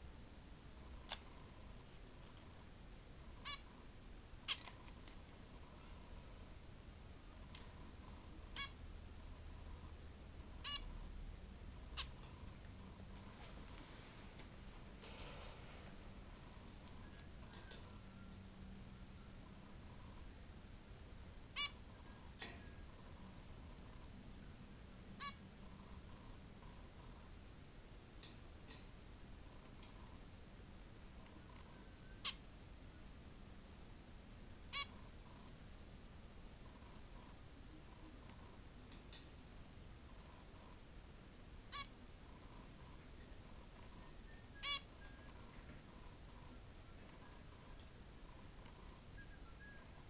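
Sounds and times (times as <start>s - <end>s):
finch calls: 10.6s - 10.8s, 44.6s - 45.2s
finch short calls: 44.6s - 44.9s.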